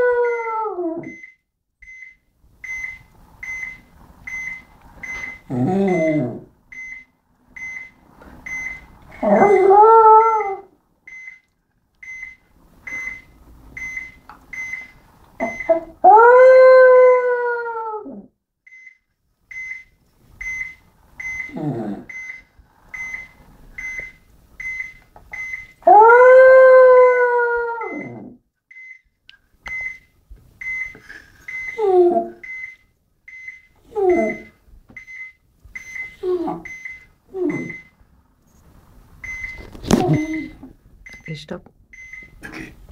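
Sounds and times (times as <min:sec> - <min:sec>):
dog howling and whining: 0:00.0 - 0:01.2, 0:05.5 - 0:06.5, 0:09.1 - 0:10.7, 0:15.4 - 0:18.3, 0:25.8 - 0:28.4, 0:31.7 - 0:32.4, 0:33.8 - 0:34.6, 0:37.3 - 0:37.8
high electronic beep: 0:33.4 - 0:38.0, 0:39.3 - 0:41.4.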